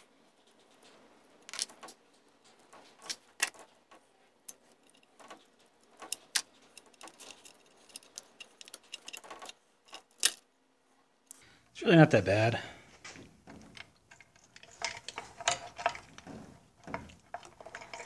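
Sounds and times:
light metallic clicks and clinks: 0:00.5 - 0:10.4.

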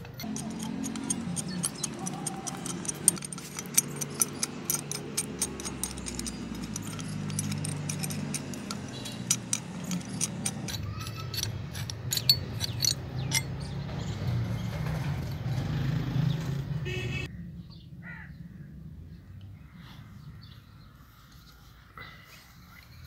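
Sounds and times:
pipe wrench metal clicks: 0:00.0 - 0:13.8.

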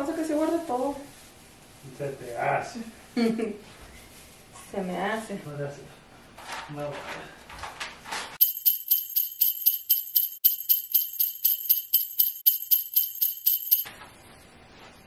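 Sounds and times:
sleigh bells jingling: 0:08.4 - 0:13.9.

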